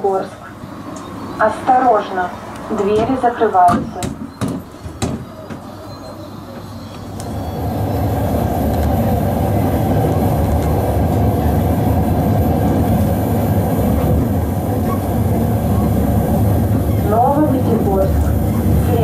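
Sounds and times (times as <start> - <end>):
electric train running noise: 4.2 - 19.0.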